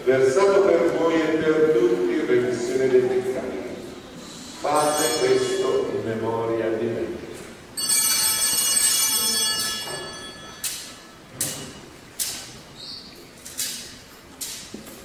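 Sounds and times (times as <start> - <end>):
altar bell ringing: 4.7 - 6.0, 7.8 - 12.0.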